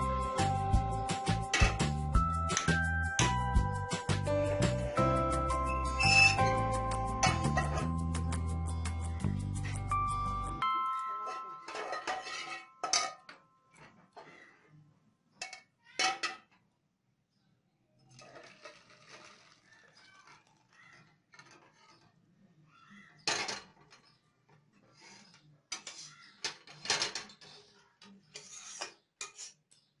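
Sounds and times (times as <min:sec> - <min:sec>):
metal pans clanking and scraping: 0:01.4 - 0:01.9, 0:05.8 - 0:08.0, 0:11.1 - 0:14.6, 0:15.4 - 0:16.5.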